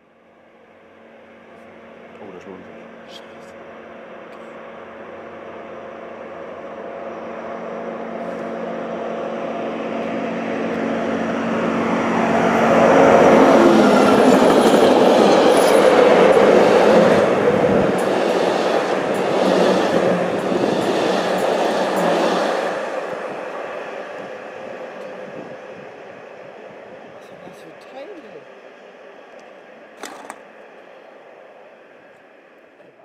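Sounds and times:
diesel locomotive engine: 0.0s - 33.0s
train wheels clicking: 13.9s - 23.4s.

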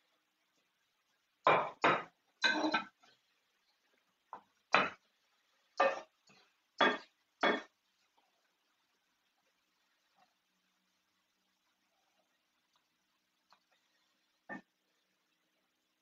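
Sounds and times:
metal utensils clinking on pan: 1.9s - 2.9s.

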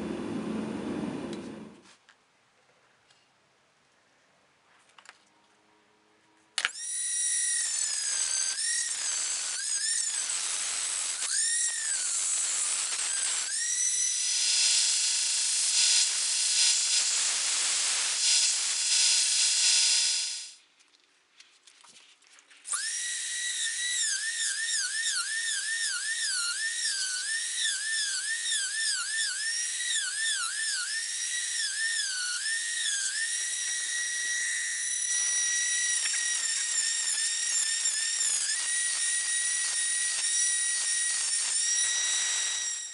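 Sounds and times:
rotary tool grinding steel: 6.6s - 20.6s, 22.6s - 42.9s.

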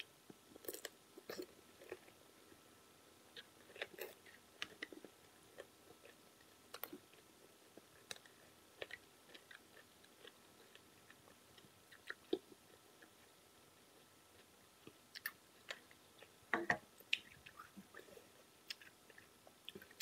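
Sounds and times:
person chewing with mouth clicks: 3.3s - 13.3s, 14.0s - 16.4s, 17.0s - 18.1s, 18.7s - 20.0s.

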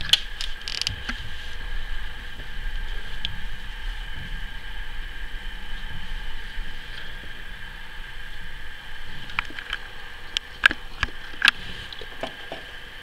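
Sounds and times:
background hiss: 0.0s - 13.0s
faint whine: 0.0s - 13.0s.

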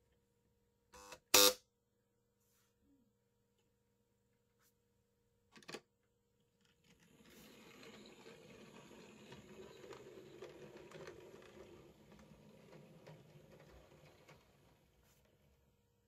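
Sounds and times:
model train whirring: 6.8s - 15.5s.

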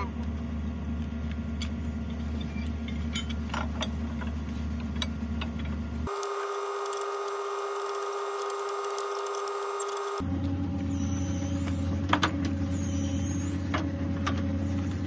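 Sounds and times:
steady high whine: 6.1s - 15.0s.

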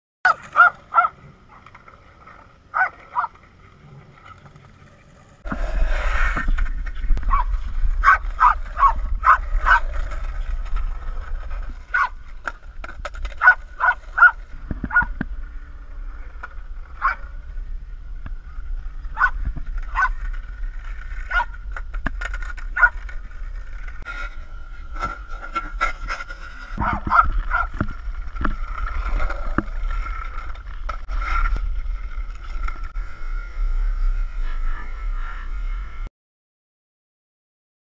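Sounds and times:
small dog barking: 0.3s - 1.2s, 2.7s - 3.3s, 7.3s - 9.8s, 11.9s - 12.2s, 13.4s - 15.1s, 17.0s - 17.2s, 19.2s - 19.4s, 20.0s - 20.2s, 21.3s - 21.5s, 22.8s - 23.0s, 26.8s - 27.7s
steady low rumble: 5.4s - 36.1s.

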